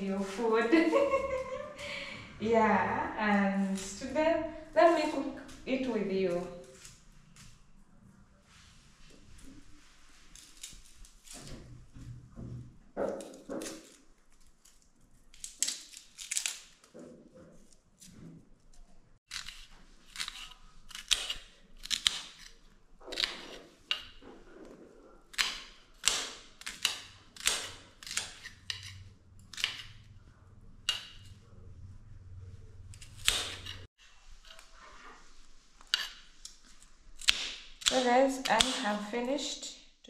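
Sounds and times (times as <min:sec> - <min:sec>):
knife chopping on stone countertop: 0:25.3 - 0:30.0.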